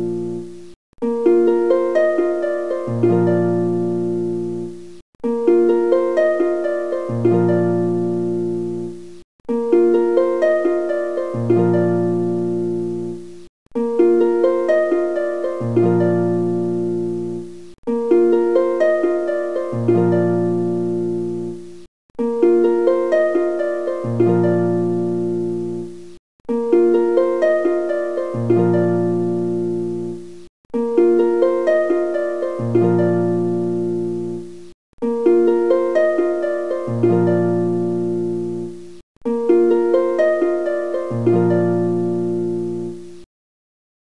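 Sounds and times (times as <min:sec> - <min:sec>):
harp-like plucked string music: 0:00.0 - 0:43.2.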